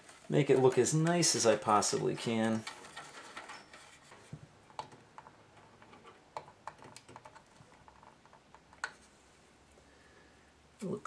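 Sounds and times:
plastic connectors clicking: 4.7 - 9.0.

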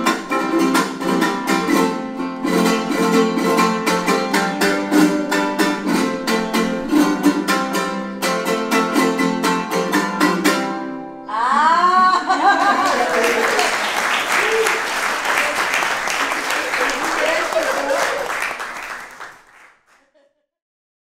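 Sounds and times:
fast strummed string instrument: 0.0 - 10.9
deep plucked string instrument: 0.0 - 11.2.

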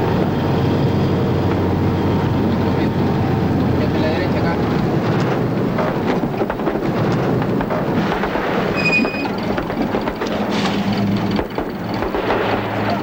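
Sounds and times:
truck rumbling and rattling: 0.0 - 13.0
short high squeal: 8.8 - 9.4.

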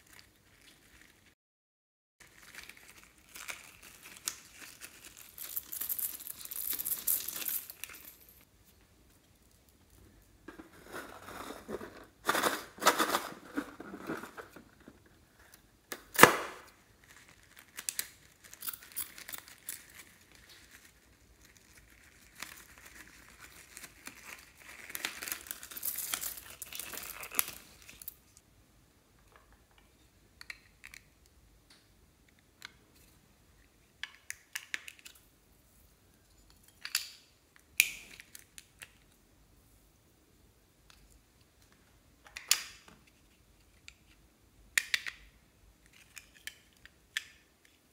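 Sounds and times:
plastic crinkling and rustling: 0.0 - 1.4, 2.2 - 8.5, 10.5 - 15.5, 16.8 - 28.3.

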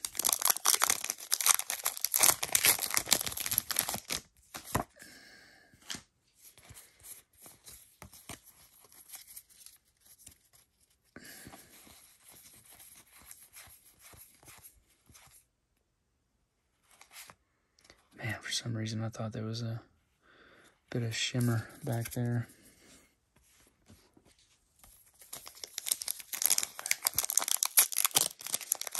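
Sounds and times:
foil wrapper crinkling and tearing: 0.0 - 4.8, 25.2 - 28.9.

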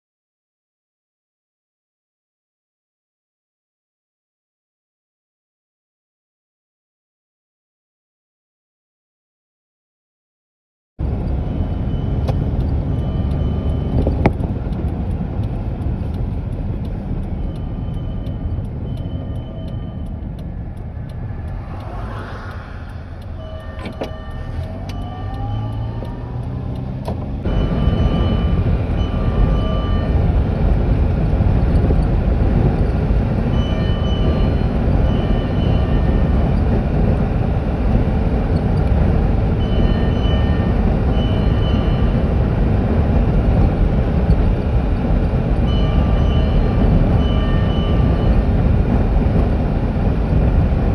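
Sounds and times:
vehicle engine and road rumble: 11.0 - 50.9
brief rising tone: 17.5 - 30.3.

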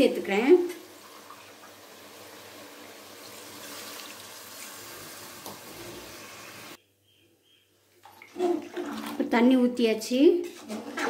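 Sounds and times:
water pouring into pot: 0.8 - 6.7.

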